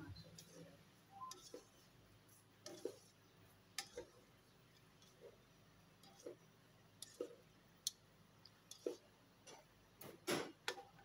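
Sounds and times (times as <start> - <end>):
brushing noise: 0.3 - 4.3.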